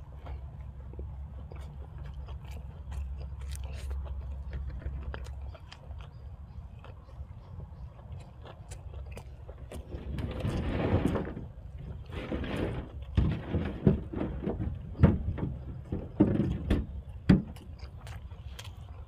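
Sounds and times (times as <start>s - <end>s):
person chewing and crunching food: 0.0s - 12.2s, 16.9s - 19.0s.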